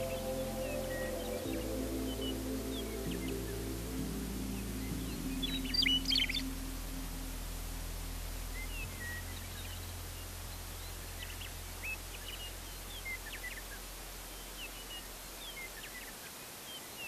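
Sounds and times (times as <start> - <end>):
birds chirping: 0.0 - 6.8
faint low hum: 0.0 - 16.9.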